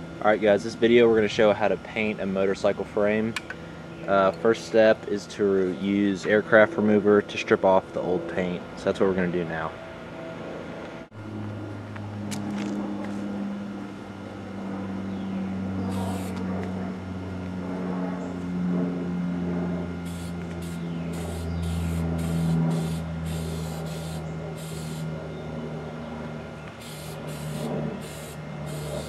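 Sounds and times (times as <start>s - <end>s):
low motor hum: 0.0s - 29.0s
aerosol can spraying hiss: 20.1s - 25.0s, 26.8s - 29.0s.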